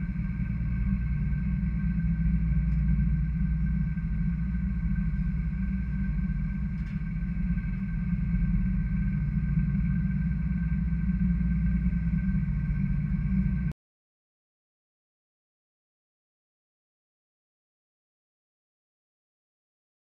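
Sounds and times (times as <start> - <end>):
boat engine drone: 0.0 - 13.7
high-pitched hum: 0.0 - 13.8.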